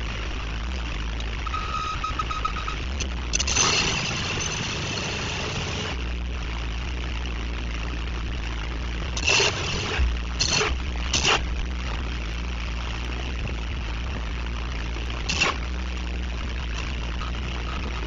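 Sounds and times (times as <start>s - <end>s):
bursts of harsh noise: 0.0s - 7.0s.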